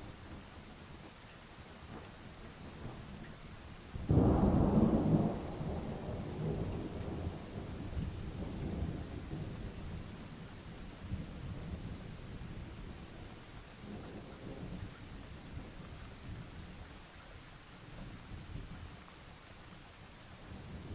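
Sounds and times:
steady rain: 0.0s - 20.9s
thunder rumbling: 4.0s - 10.4s.

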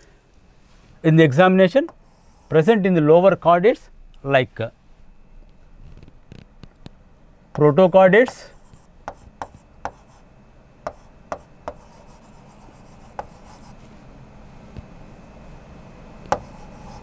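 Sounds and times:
chalk tapping on blackboard: 7.6s - 10.2s, 10.9s - 13.8s, 16.3s - 17.0s.

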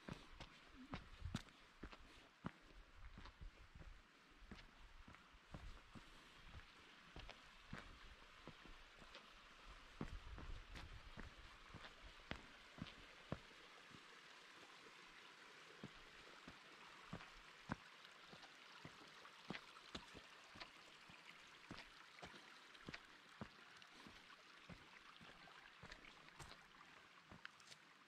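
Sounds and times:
footsteps on stone: 0.0s - 9.2s, 10.0s - 13.4s
stream flowing over rock: 0.0s - 28.0s.

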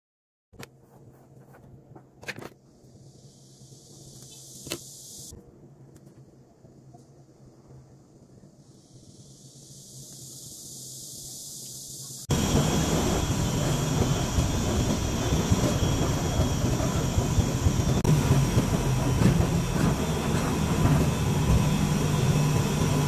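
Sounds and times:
faint hiss: 2.6s - 15.2s
low engine hum: 12.3s - 23.0s.

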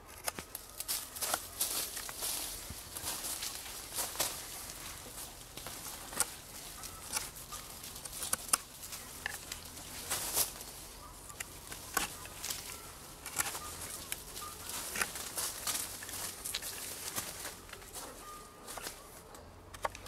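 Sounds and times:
knife shaving wooden stick: 4.6s - 15.4s.

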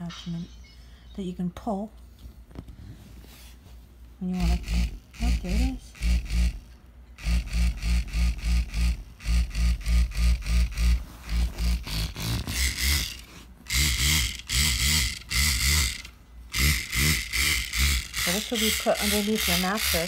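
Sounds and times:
bed shaker buzzing in pulses: 4.2s - 20.0s.

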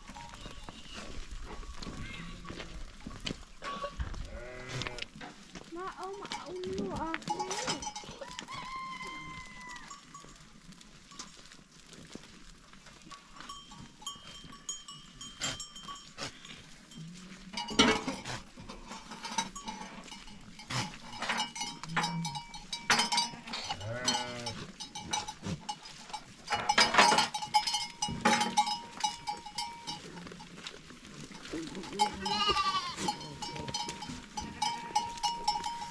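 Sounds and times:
goat bells clinking: 0.0s - 35.9s
goat bleating: 7.1s - 9.9s, 31.6s - 35.6s
knocks and clatter: 26.5s - 29.2s.

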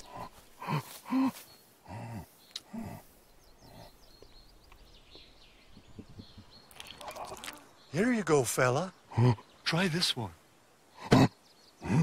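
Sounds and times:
faint bird chirps: 0.0s - 12.0s
low vocal grunts: 11.0s - 12.0s.

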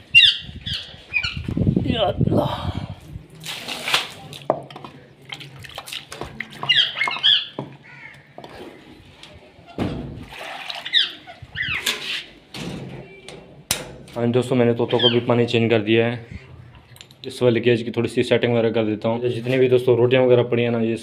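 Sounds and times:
parrots squawking: 0.1s - 1.4s, 6.6s - 8.8s, 10.8s - 11.9s, 14.9s - 15.3s
water splash: 3.4s - 4.6s, 5.2s - 7.2s, 10.2s - 11.2s.

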